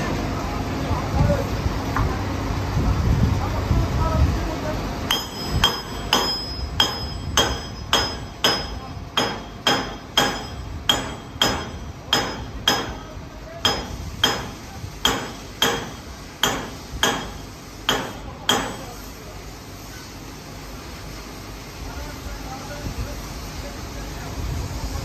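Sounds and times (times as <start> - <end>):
hammer striking steel: 5.1 - 19.1.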